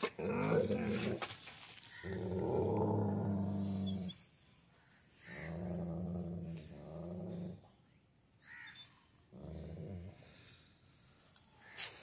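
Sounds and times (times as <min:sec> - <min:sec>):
dog growling: 0:00.0 - 0:01.3, 0:02.0 - 0:04.2, 0:05.2 - 0:07.7, 0:09.3 - 0:10.4.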